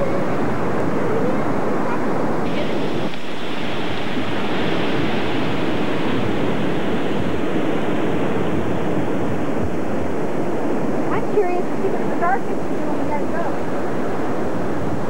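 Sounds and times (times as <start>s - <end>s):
surf washing over rocks: 0.0s - 15.0s.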